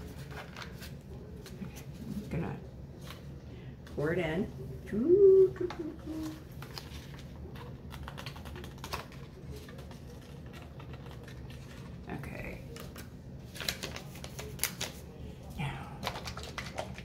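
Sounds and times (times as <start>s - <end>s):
paper packet crinkling: 0.0s - 2.3s, 6.0s - 15.2s, 16.0s - 17.0s.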